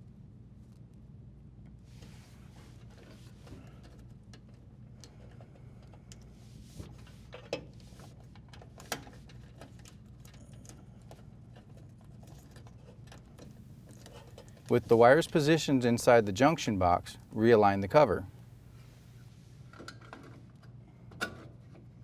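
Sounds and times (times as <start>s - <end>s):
low steady hum: 0.0s - 22.0s
wires rustling and clicking: 1.6s - 17.4s.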